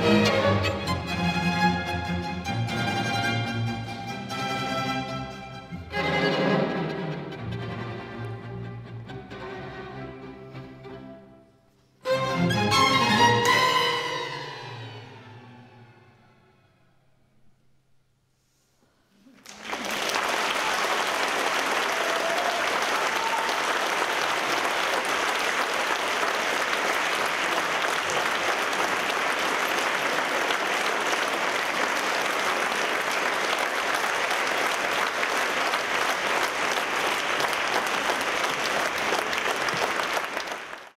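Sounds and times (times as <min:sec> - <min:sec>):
audience applauding: 0:19.3 - 0:41.0.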